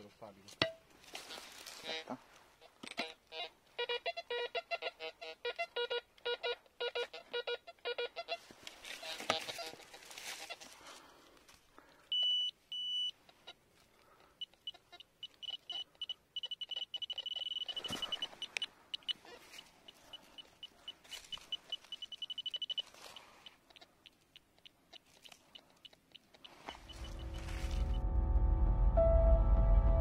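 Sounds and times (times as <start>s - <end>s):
rustling: 0.9s - 2.8s, 8.4s - 28.0s
metal detector beeping: 5.4s - 8.4s, 12.1s - 13.2s, 14.2s - 24.2s, 25.8s - 28.0s.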